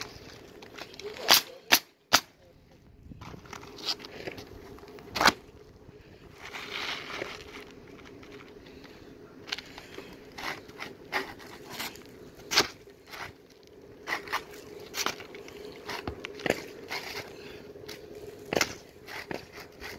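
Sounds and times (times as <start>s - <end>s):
shingles scraping and rustling: 3.2s - 5.5s, 6.3s - 19.9s.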